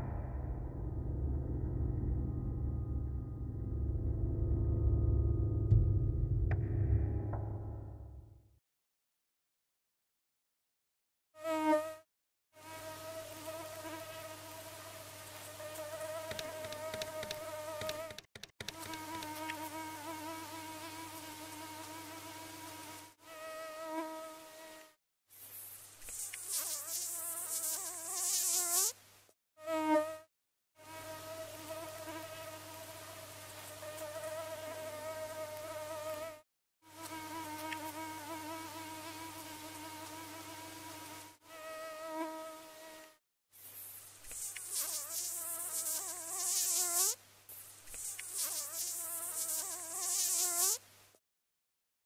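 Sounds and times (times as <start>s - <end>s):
mosquito buzzing whine: 18.7s - 25.0s, 26.1s - 29.0s, 29.6s - 43.2s, 44.3s - 47.2s, 47.9s - 50.8s.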